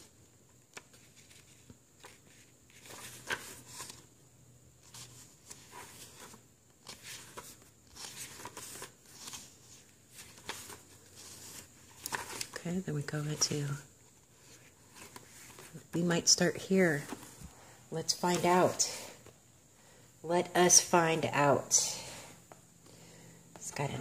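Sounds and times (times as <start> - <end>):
paper pages turning: 0.5 - 4.1, 4.8 - 12.7, 14.2 - 15.8.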